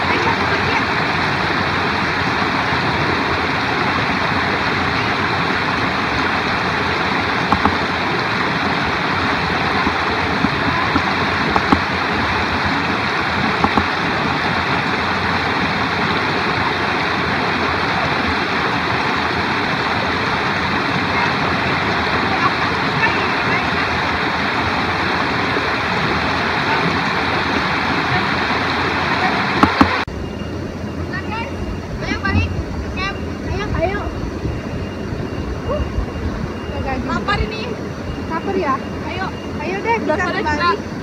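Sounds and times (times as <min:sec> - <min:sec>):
stream rushing over boulders: 0:00.0 - 0:30.1.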